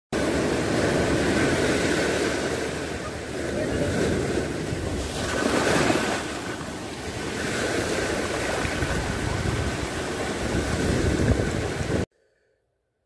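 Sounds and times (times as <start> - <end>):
surf washing over rocks: 0.2 - 12.0.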